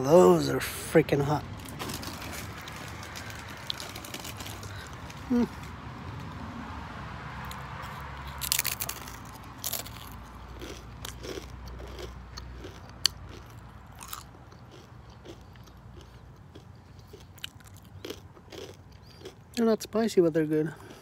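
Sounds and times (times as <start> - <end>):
crunching tortilla chips: 1.6 - 5.7, 7.5 - 19.6
quiet chewing: 2.0 - 6.3, 7.4 - 19.6.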